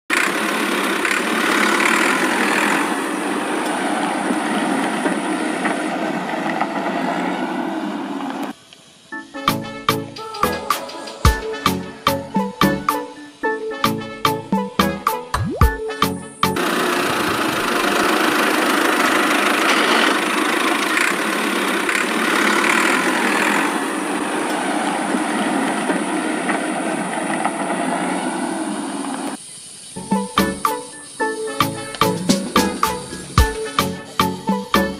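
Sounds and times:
toy motor and gears whirring: 19.6 - 23.8.

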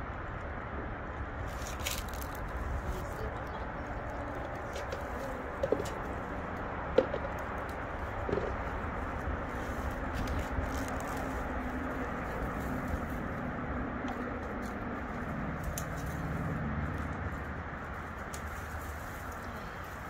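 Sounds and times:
motor vehicle engine rumbling: 0.0 - 20.0.

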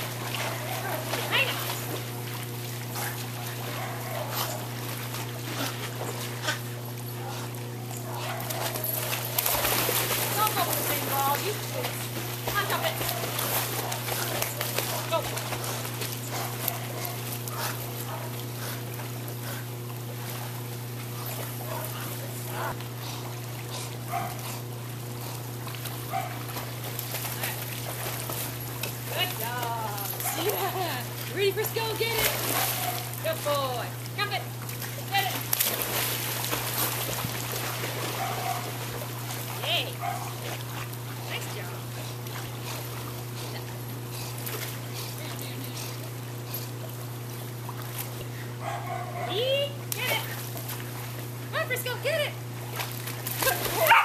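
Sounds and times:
dogs splashing in water: 0.0 - 54.0
steady low hum: 0.0 - 54.0.

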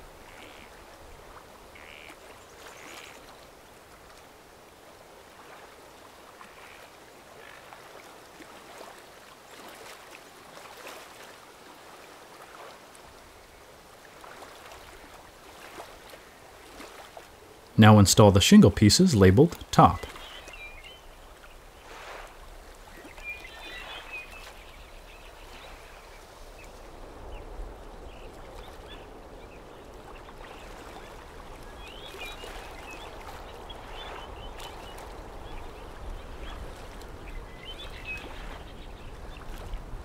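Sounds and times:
soft steady hiss: 12.8 - 39.2
small birds chirping: 19.2 - 22.2, 22.9 - 39.6.

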